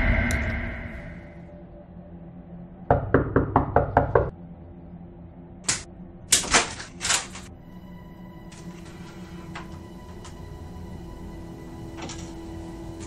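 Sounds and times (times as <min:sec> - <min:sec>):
rapid knocking on door: 0:02.9 - 0:04.3.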